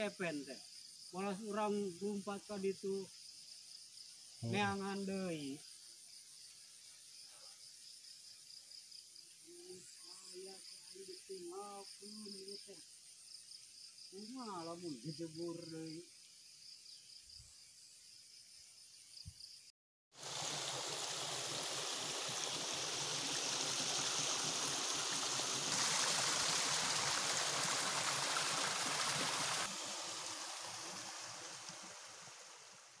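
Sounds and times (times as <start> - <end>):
insects trilling: 0.0 - 33.0
stream running over rocks: 20.1 - 33.0.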